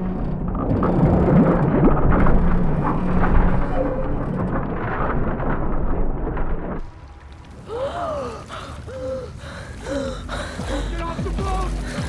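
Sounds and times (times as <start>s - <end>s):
muffled underwater rumble: 0.0s - 12.0s
water sloshing: 0.0s - 12.0s
person gasping for breath: 7.7s - 11.1s, 11.7s - 12.0s.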